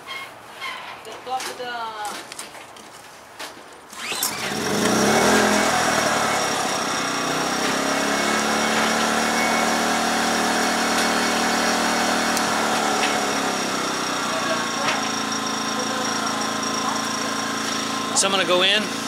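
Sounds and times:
generator engine pull-started: 3.9s - 19.0s.

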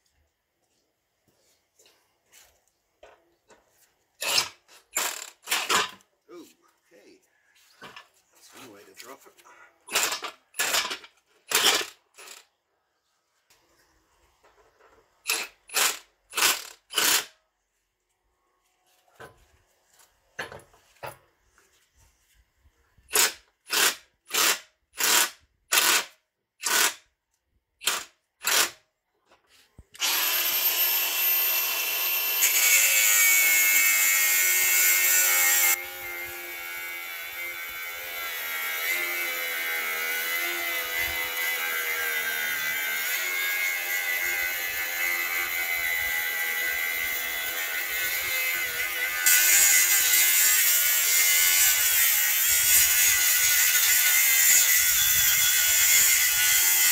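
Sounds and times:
angle grinder cutting metal: 4.2s - 6.0s, 9.9s - 12.5s, 30.0s - 56.9s.

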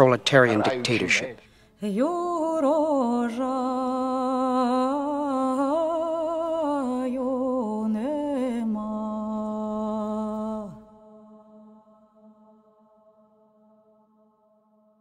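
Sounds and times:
person singing wordless melody: 1.7s - 12.8s.

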